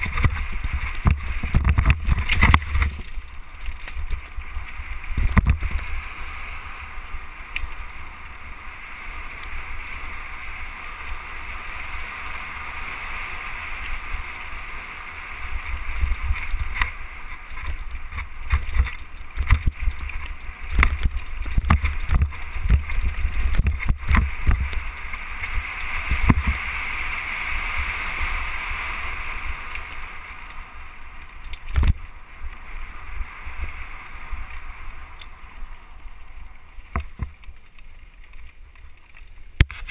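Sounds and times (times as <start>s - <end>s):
bike rattling over bumps: 0.0s - 8.4s, 9.0s - 27.2s
bike tyres on leaves and dirt: 0.0s - 39.9s
wind rumble: 0.0s - 39.9s.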